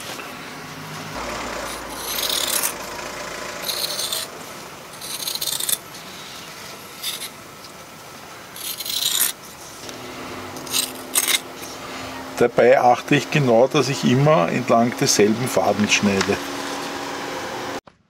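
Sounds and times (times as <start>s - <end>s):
scissors cutting fiberglass cloth: 1.6s - 2.8s, 5.0s - 5.8s, 8.6s - 9.4s.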